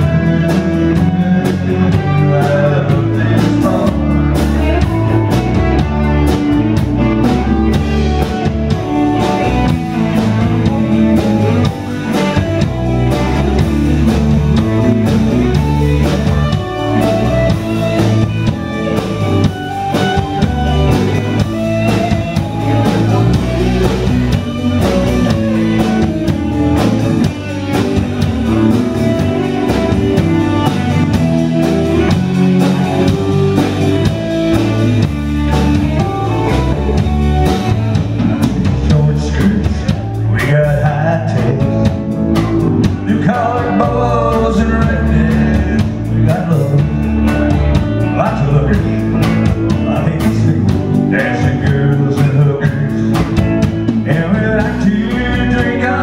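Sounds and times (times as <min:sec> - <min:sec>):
rock band playing instrumental: 0:00.0 - 0:56.0.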